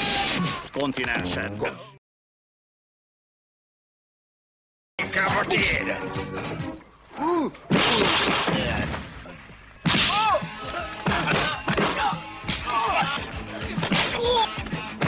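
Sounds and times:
punch whacks and thuds: 0:07.7 - 0:09.1, 0:09.8 - 0:10.3, 0:11.1 - 0:12.7, 0:13.8 - 0:14.2.

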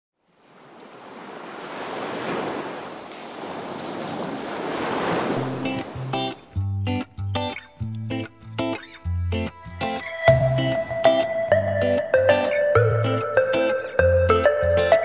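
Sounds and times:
surf washing on beach: 0:00.2 - 0:06.5
music with plucked notes: 0:05.6 - 0:15.0.

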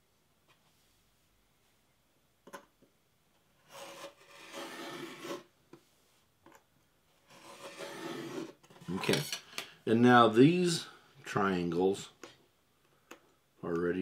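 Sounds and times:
knife rasping through tape: 0:03.7 - 0:05.5, 0:07.3 - 0:08.6.

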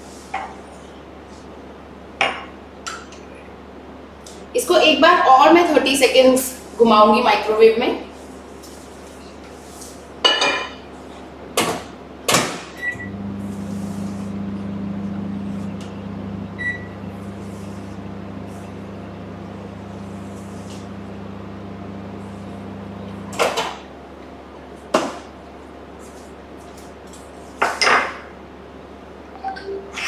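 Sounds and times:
microwave oven humming: 0:10.4 - 0:30.0
microwave short beep: 0:12.8 - 0:13.4, 0:15.3 - 0:17.4.

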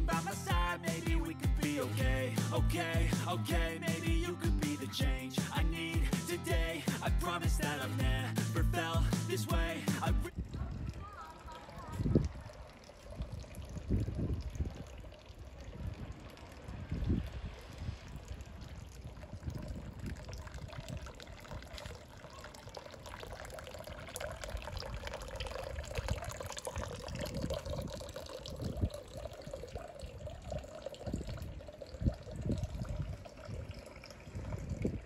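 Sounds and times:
running water: 0:00.0 - 0:35.0
wind buffeting microphone: 0:10.3 - 0:22.8, 0:23.8 - 0:35.0.

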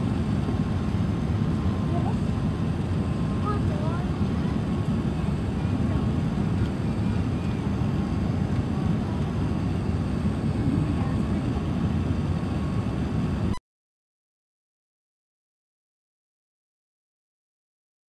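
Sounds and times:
airliner cabin engine rumble: 0:00.0 - 0:13.6.

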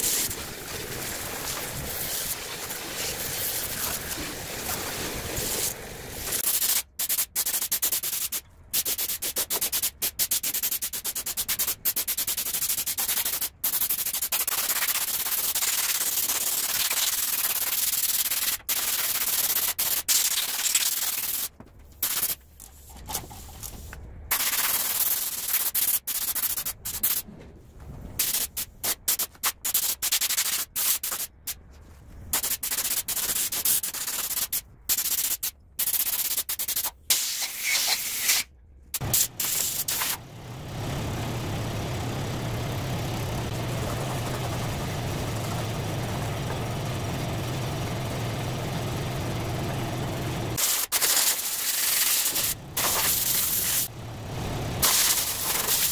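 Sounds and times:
paint spray gun hissing: 0:00.0 - 0:07.3, 0:39.0 - 0:40.3, 0:43.2 - 0:53.9, 0:54.8 - 0:55.9.

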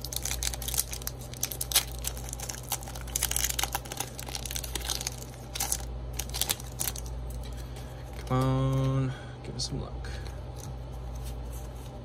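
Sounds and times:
foil wrapper crinkling: 0:00.0 - 0:08.8
air conditioner hum: 0:00.0 - 0:12.0.

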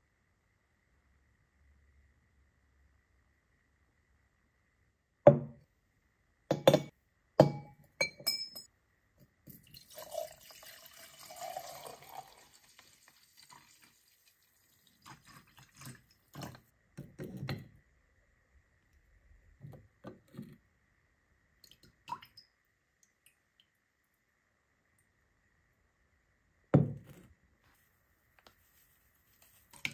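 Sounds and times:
metal knocking against glass: 0:06.5 - 0:08.7
liquid pouring: 0:09.5 - 0:16.6.

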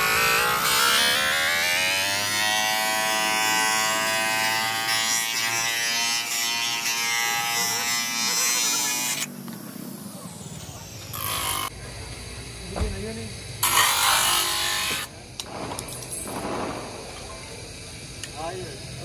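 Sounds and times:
electric motor whining: 0:06.6 - 0:11.7.

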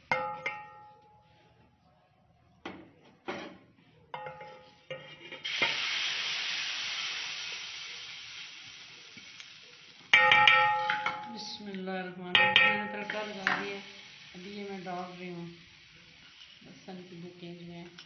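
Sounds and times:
spoon clinking against pot: 0:04.2 - 0:05.4, 0:10.1 - 0:11.4, 0:12.4 - 0:13.7
hot oil sizzling: 0:04.2 - 0:18.0.

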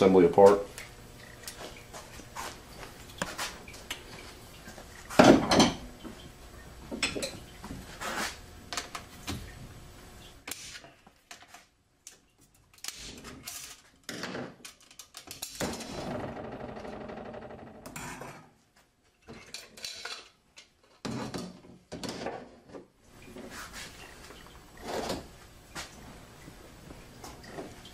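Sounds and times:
metal parts clinking and scraping: 0:19.4 - 0:20.4.

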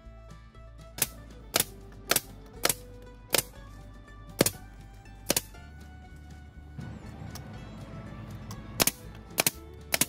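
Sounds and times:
guitar music: 0:00.0 - 0:10.0
nail gun firing: 0:01.0 - 0:03.6, 0:04.4 - 0:04.6, 0:05.3 - 0:05.6, 0:08.8 - 0:10.0.

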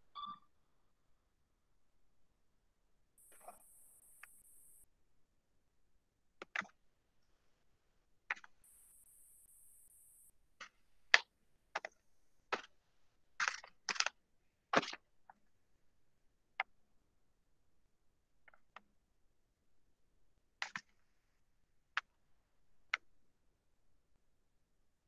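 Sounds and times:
clicks and taps at computer desk: 0:06.4 - 0:06.8.

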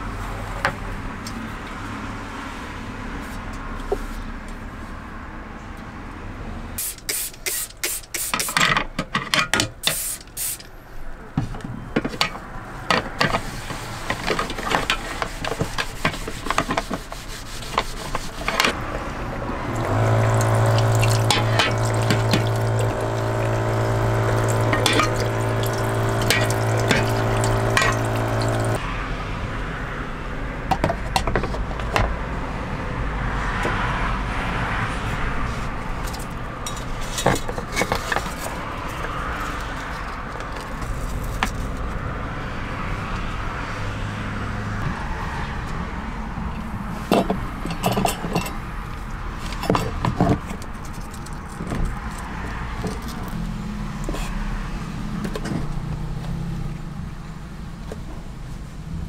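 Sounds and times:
low steady hum: 0:18.8 - 0:28.8
water running: 0:19.6 - 0:28.8.

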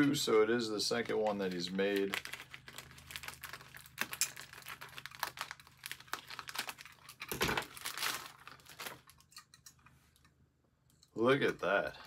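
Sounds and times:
plastic wrapping crinkling: 0:00.9 - 0:09.6.

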